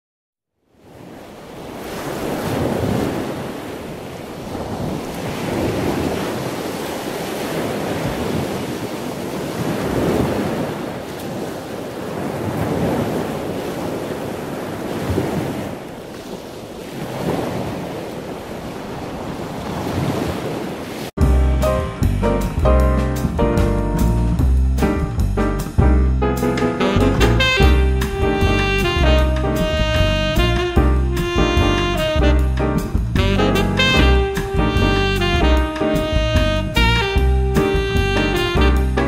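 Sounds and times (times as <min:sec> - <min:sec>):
ocean waves washing in: 0:00.6 - 0:31.4.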